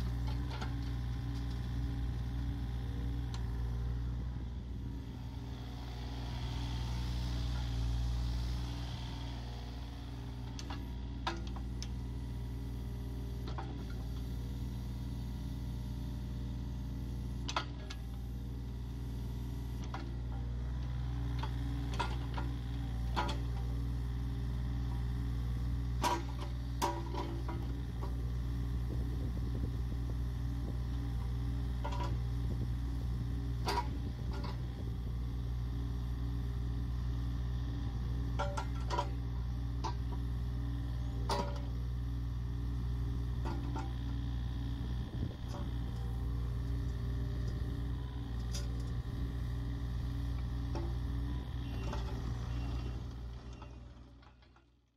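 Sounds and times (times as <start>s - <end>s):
diesel excavator engine running: 0.0s - 54.9s
high hydraulic whine: 50.3s - 54.2s.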